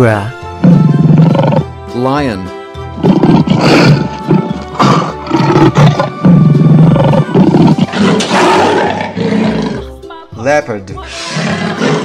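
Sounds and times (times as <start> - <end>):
background music: 0.0 - 12.0
lion roaring: 0.6 - 1.7, 3.0 - 9.9, 11.1 - 12.0.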